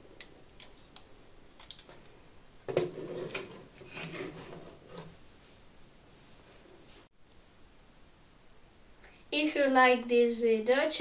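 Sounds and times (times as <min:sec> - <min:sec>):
plastic rubbing and knocking: 0:02.7 - 0:05.2.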